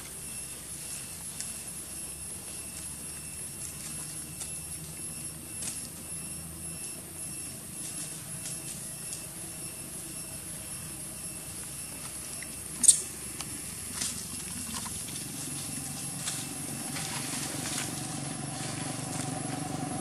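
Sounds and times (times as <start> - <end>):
faint high whine: 0.0 - 20.0.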